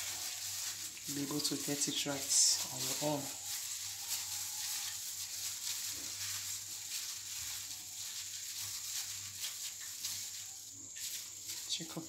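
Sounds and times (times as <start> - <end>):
background hiss: 0.0 - 12.0
faint rustling of gloved hand: 0.0 - 12.0.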